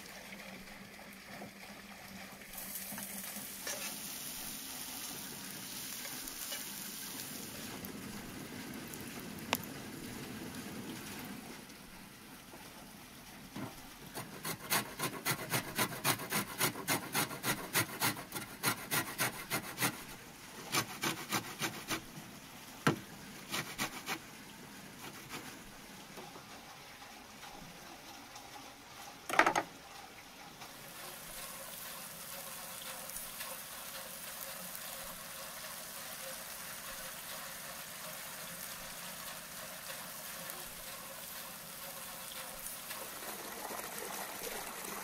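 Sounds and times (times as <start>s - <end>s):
onions sizzling in a pan: 2.5s - 9.7s, 30.7s - 43.2s
lemon grating on metal grater: 14.1s - 20.1s, 20.7s - 22.0s, 23.5s - 24.2s.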